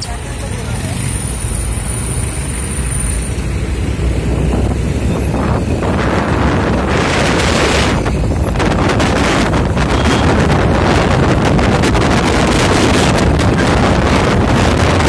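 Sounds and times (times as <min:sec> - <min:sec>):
road and engine rumble: 0:00.0 - 0:15.0
wind buffeting microphone: 0:03.4 - 0:15.0.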